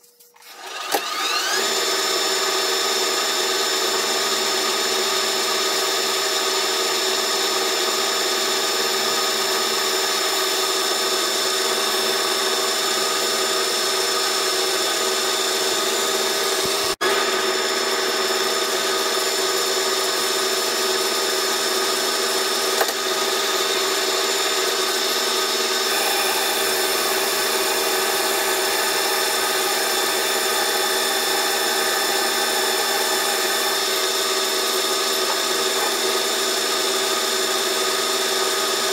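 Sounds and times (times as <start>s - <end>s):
metal lathe whine: 0.4s - 38.9s
cutting tool on steel: 17.8s - 38.9s.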